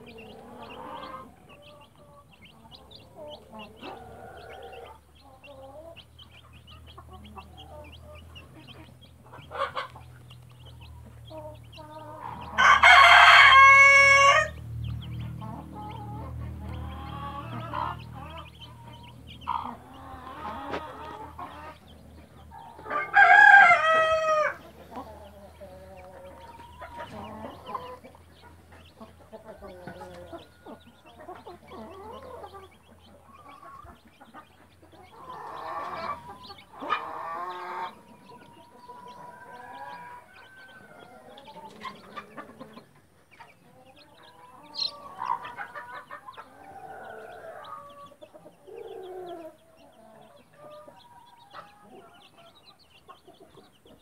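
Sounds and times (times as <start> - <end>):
chicks peeping: 0.0 - 54.0
hen clucking: 0.0 - 54.0
rooster crowing: 12.2 - 14.6, 22.7 - 24.7.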